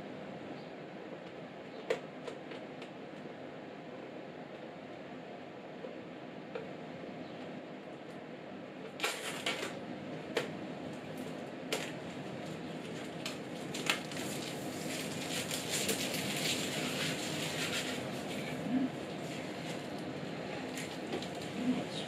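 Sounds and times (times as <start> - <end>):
crinkling plastic film: 9.0 - 9.8, 11.1 - 22.0.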